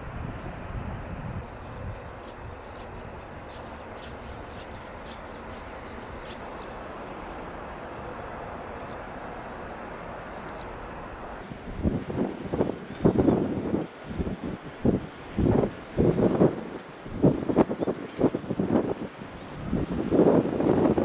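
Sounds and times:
electric locomotive running: 1.4s - 11.4s.

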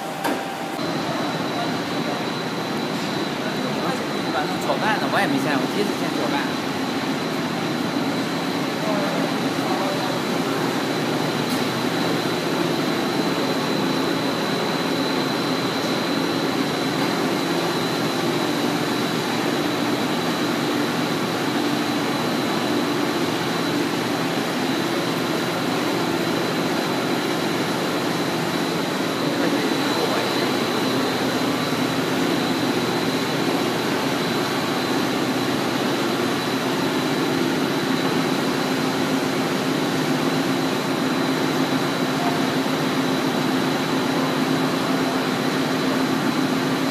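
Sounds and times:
machinery high whine: 0.0s - 46.9s
machinery low hum: 0.0s - 46.9s.

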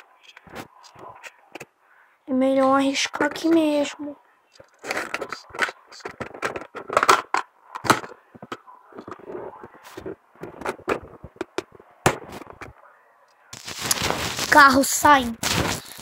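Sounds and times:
plastic toy vehicles knocking: 4.8s - 9.2s.

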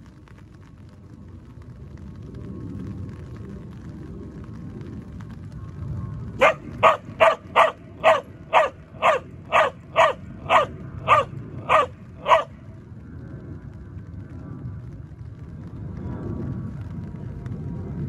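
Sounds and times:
dog barking sharply: 6.4s - 12.5s.

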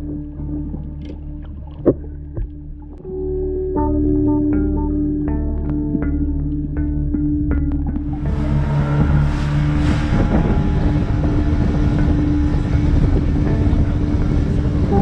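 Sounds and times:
background music held note: 8.1s - 15.0s
rushing water and wind: 8.2s - 15.0s.

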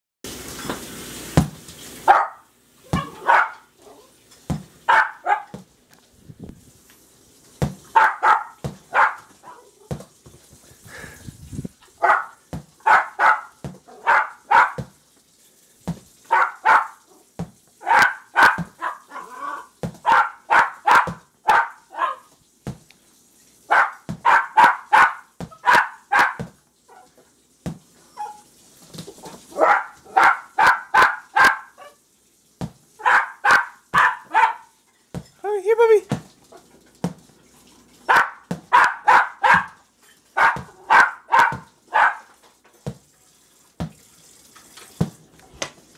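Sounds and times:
puppies barking: 2.0s - 4.1s, 4.8s - 5.6s, 7.9s - 9.8s, 12.0s - 14.9s, 16.3s - 17.1s, 17.8s - 22.3s, 23.7s - 27.2s, 29.4s - 32.0s, 33.0s - 34.8s, 38.0s - 39.8s, 40.4s - 42.4s.

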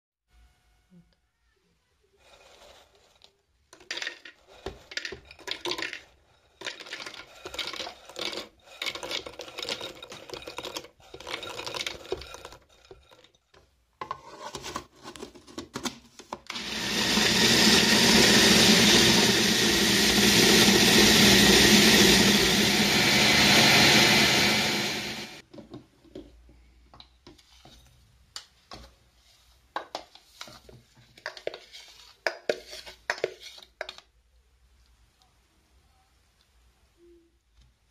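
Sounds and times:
metal spoon scraping plastic bowl: 2.2s - 15.4s, 29.5s - 34.1s
cookies clattering into plastic bowl: 2.5s - 13.4s
food processor grinding: 6.6s - 13.3s, 16.5s - 25.4s.

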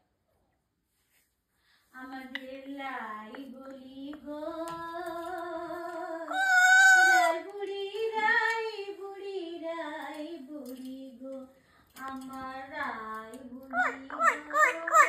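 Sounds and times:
parrot singing: 6.3s - 7.4s, 13.7s - 15.0s.

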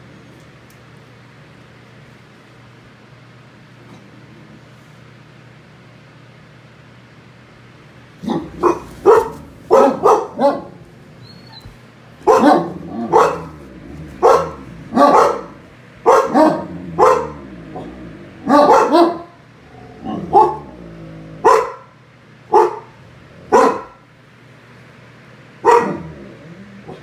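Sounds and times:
dog barking: 8.2s - 19.4s, 20.0s - 20.8s, 21.4s - 24.0s, 25.6s - 26.2s.

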